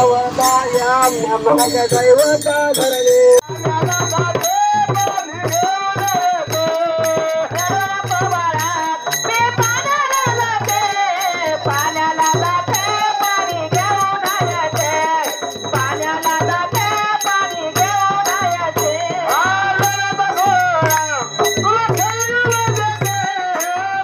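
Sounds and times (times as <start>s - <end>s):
person singing melody: 0.0s - 7.0s
high clinking percussion: 0.0s - 24.0s.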